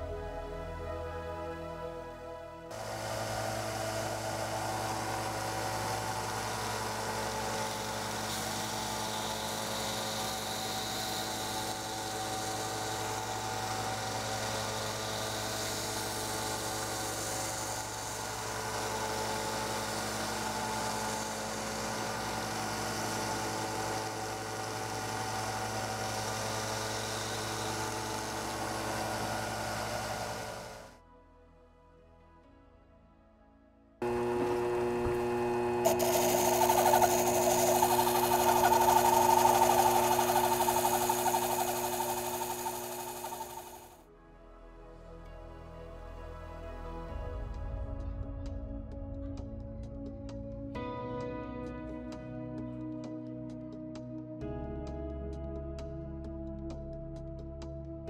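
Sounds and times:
saw blade hissing through wood: 0:02.7 - 0:30.9, 0:35.8 - 0:44.0
bandsaw motor hum: 0:02.7 - 0:31.0, 0:34.0 - 0:44.0.

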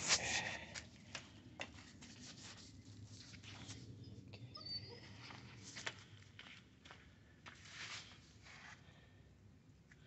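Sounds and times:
puppy squeak: 0:04.5 - 0:05.2.

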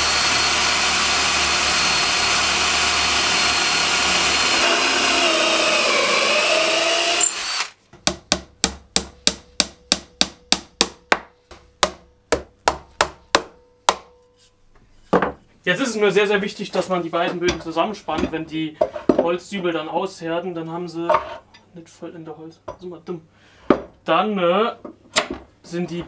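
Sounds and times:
cordless drill boring through wood: 0:00.0 - 0:07.8.

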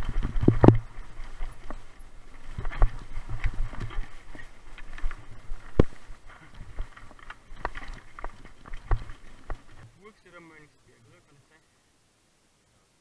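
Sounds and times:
bike knocking on rocks: 0:00.0 - 0:09.8
bike rattling: 0:00.0 - 0:09.9
tyres crunching over stones: 0:00.0 - 0:09.9.

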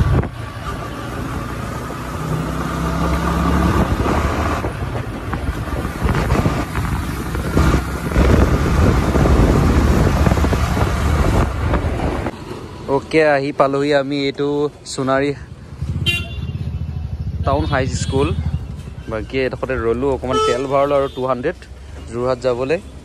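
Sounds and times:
rushing wind noise: 0:00.0 - 0:12.4.

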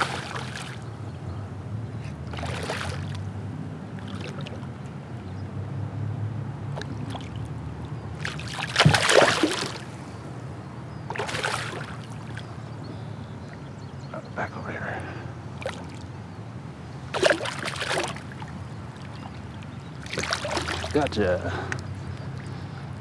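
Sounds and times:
fish thrashing and splashing: 0:00.0 - 0:00.8, 0:02.3 - 0:03.2, 0:06.8 - 0:07.4, 0:08.2 - 0:09.9, 0:11.1 - 0:12.5, 0:17.1 - 0:21.1.

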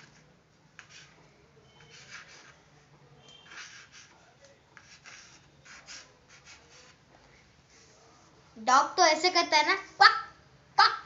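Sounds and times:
chalk scratching on chalkboard: 0:00.0 - 0:07.1.

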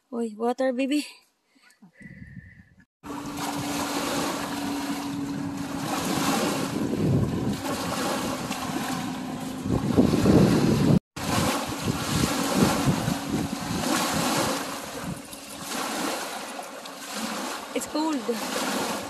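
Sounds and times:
wind buffeting microphone: 0:02.0 - 0:16.4
small waves breaking on shore: 0:03.0 - 0:19.0
steady low hum: 0:03.1 - 0:17.9.

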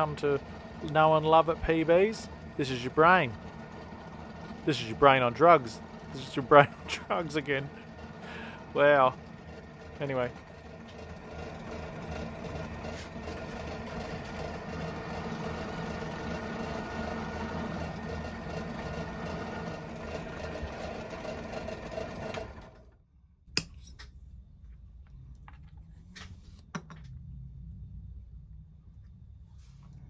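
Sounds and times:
drill press motor running: 0:00.0 - 0:23.0.

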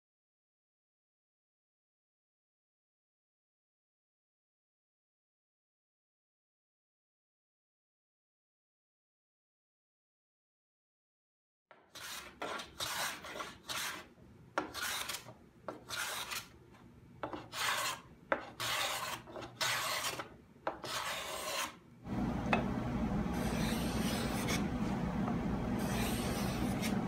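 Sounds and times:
hand tool scraping wood: 0:12.0 - 0:16.5, 0:17.2 - 0:21.8, 0:23.3 - 0:24.7, 0:25.8 - 0:27.0.

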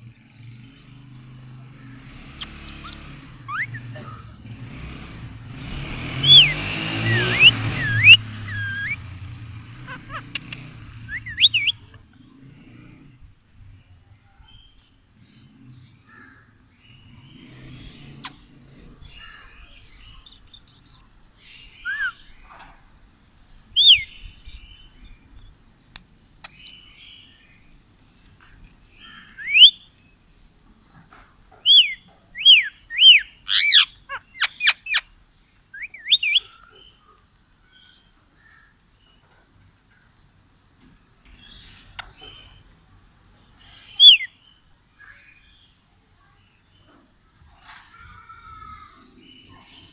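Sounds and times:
parakeet screeching: 0:02.4 - 0:03.8, 0:06.2 - 0:09.0, 0:09.8 - 0:11.8, 0:31.7 - 0:35.0
parakeet chattering: 0:02.4 - 0:04.4, 0:06.1 - 0:09.0, 0:09.8 - 0:12.1, 0:31.6 - 0:35.1, 0:35.8 - 0:36.5.

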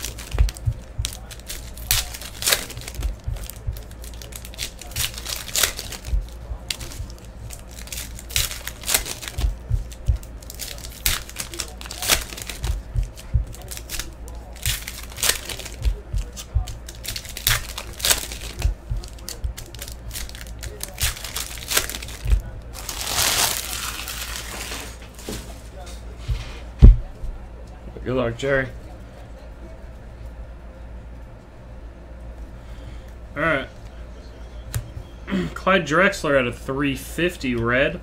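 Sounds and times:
foil wrappers tearing and crinkling: 0:00.0 - 0:25.4
cards being handled: 0:00.0 - 0:26.4.

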